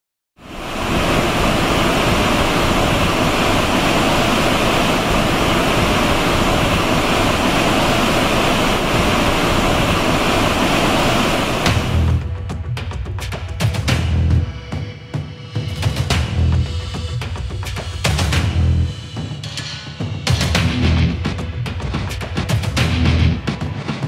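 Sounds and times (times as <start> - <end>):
churning water rushing: 0.4 - 12.2
sharp hit: 11.3 - 12.2
music: 11.7 - 24.0.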